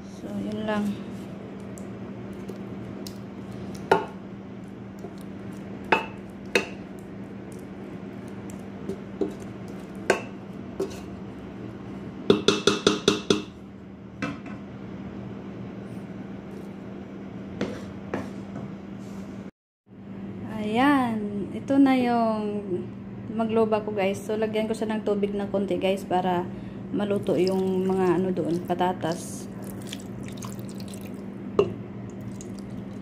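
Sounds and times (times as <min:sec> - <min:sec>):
wooden spoon knocking on metal pot: 0:12.3 - 0:13.6.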